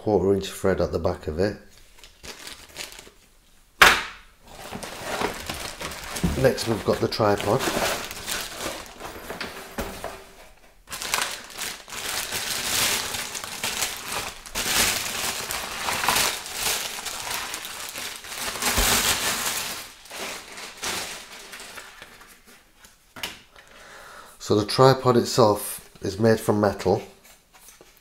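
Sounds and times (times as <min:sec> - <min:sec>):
plastic bag crinkling: 0:01.7 - 0:03.3, 0:04.4 - 0:22.6.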